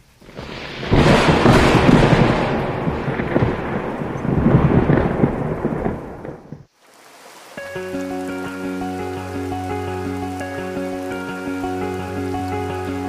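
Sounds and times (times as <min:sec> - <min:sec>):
thunder rolling: 0:00.2 - 0:06.7.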